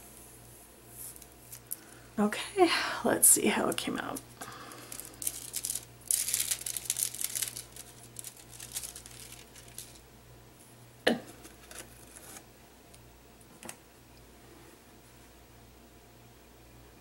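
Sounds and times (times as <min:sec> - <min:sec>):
foil crinkling: 0:04.0 - 0:10.0, 0:11.4 - 0:12.4.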